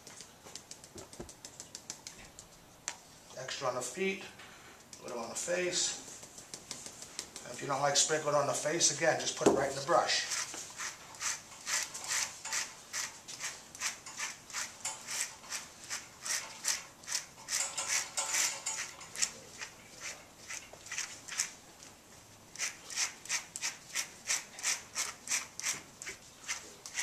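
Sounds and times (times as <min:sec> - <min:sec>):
brush scratching through dog fur: 0:05.0 - 0:07.7, 0:09.7 - 0:21.6, 0:22.5 - 0:27.0.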